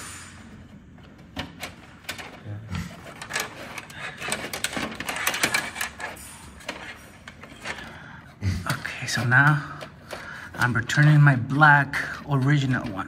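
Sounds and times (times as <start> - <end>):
wire scraping against metal: 2.1 - 7.9.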